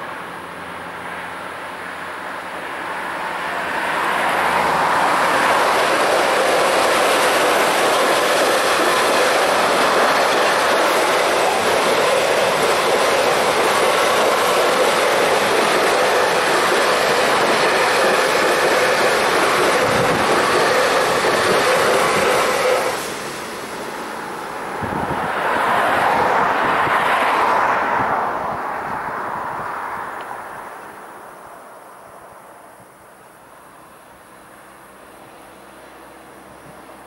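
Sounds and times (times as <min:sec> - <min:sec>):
train wheels rushing on rails: 0:00.0 - 0:29.3
freight train passing: 0:00.0 - 0:37.0.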